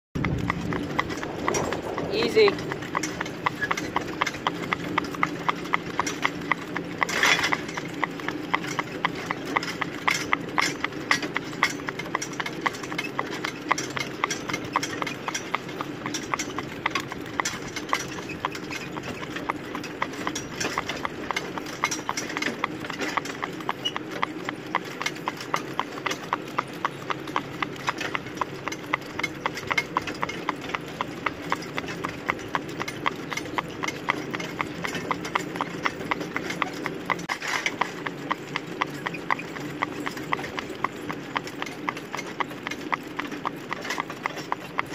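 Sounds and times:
steady rumble: 0:00.2 - 0:09.0
hooves clip-clopping on gravel: 0:00.2 - 0:44.9.

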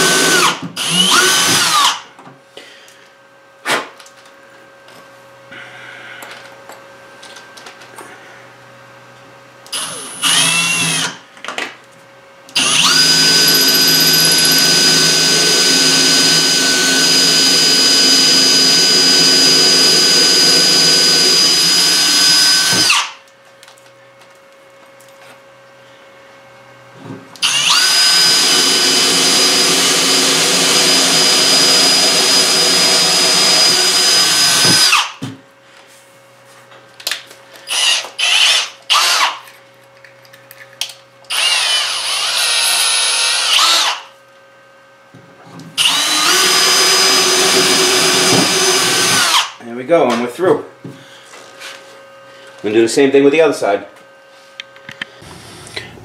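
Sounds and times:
power drill boring wood: 0:00.0 - 0:02.0, 0:09.7 - 0:11.2, 0:12.6 - 0:23.2, 0:27.4 - 0:35.2, 0:37.7 - 0:39.4, 0:41.3 - 0:44.1, 0:45.8 - 0:49.6.

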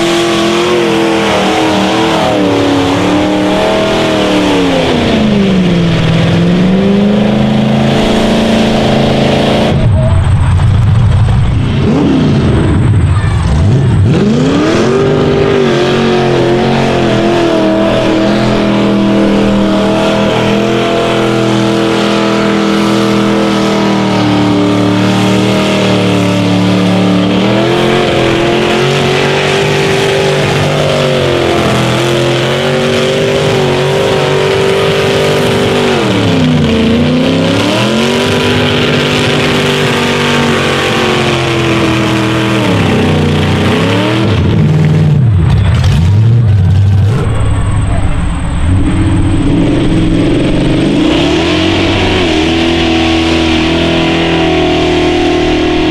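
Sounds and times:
truck engine revving: 0:00.0 - 0:55.9.

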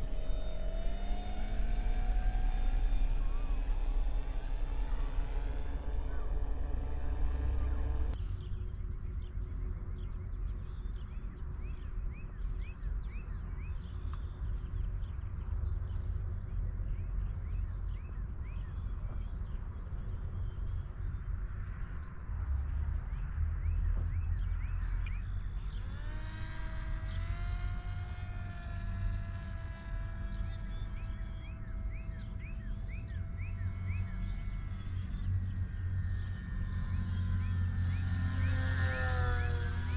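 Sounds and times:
electric motor whine: 0:00.0 - 0:08.2, 0:24.9 - 0:39.9
wind rumbling on microphone: 0:00.0 - 0:39.9.

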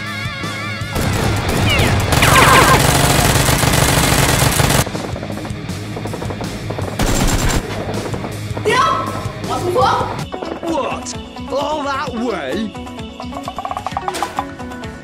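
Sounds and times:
background music: 0:00.0 - 0:15.0
automatic gunfire bursts: 0:01.0 - 0:04.9, 0:07.0 - 0:07.6.

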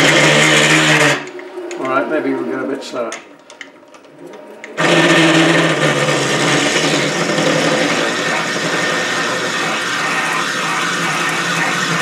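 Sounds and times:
drill cutting plastic on lathe: 0:00.0 - 0:01.3, 0:04.8 - 0:12.0
lathe motor and gear whine: 0:04.8 - 0:12.0.

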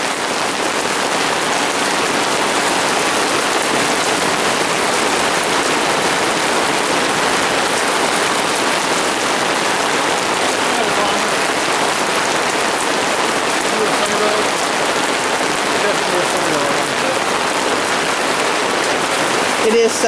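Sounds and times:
heavy rain: 0:00.0 - 0:20.0.

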